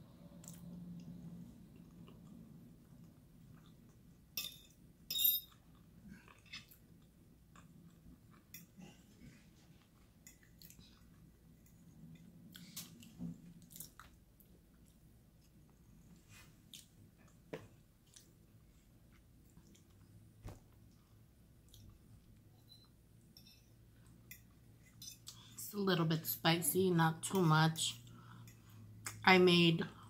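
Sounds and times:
person chewing food: 5.5s - 16.0s, 16.6s - 22.4s.

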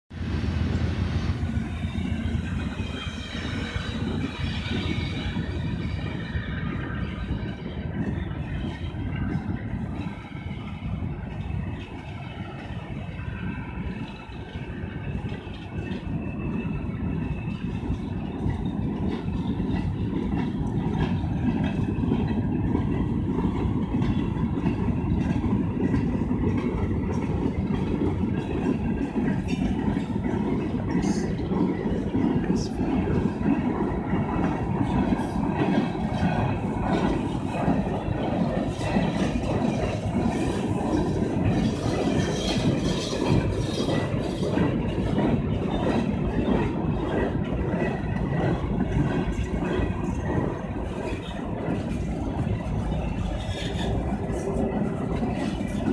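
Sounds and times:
freight train rolling past: 0.1s - 55.9s.

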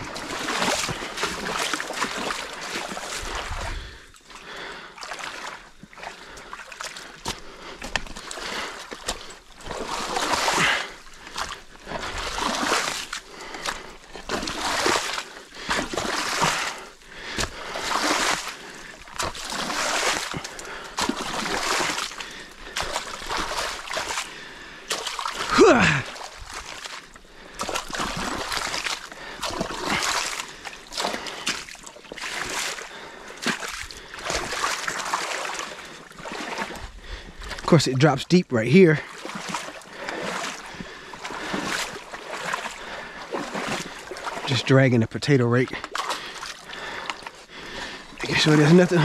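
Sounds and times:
wading through water splashes: 0.0s - 38.0s, 38.7s - 49.0s.

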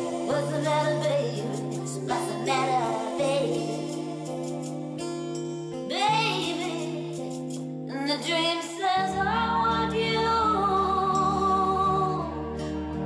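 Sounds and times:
sustained keyboard chords: 0.0s - 8.2s.

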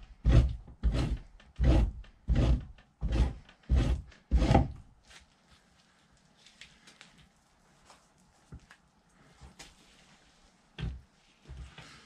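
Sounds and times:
knife scraping a hide: 0.0s - 4.7s.

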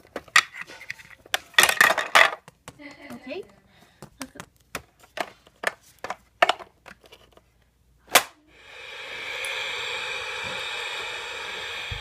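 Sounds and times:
steady rushing noise: 8.6s - 12.0s.

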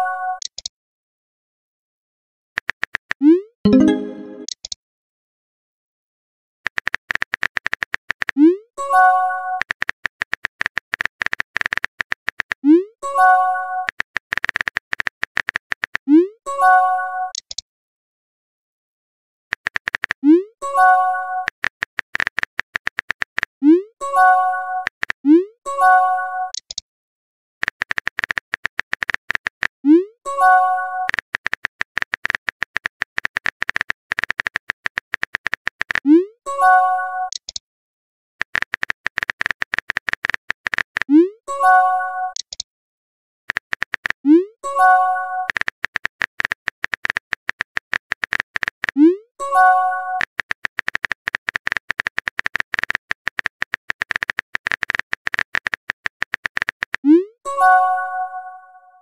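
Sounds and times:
phone keyboard typing clicks: 2.6s - 4.8s, 6.7s - 8.4s, 9.6s - 12.6s, 13.8s - 16.1s, 17.3s - 17.6s, 19.5s - 20.3s, 21.4s - 23.6s, 26.5s - 26.8s, 27.6s - 29.8s, 31.0s - 36.2s, 37.3s - 37.6s, 38.4s - 41.2s, 42.3s - 42.6s, 43.5s - 44.3s, 45.4s - 49.2s, 50.1s - 57.1s.

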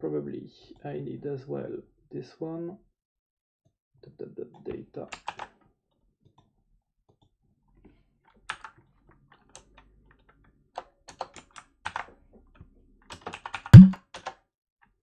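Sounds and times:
typing on a computer keyboard: 13.2s - 14.3s.

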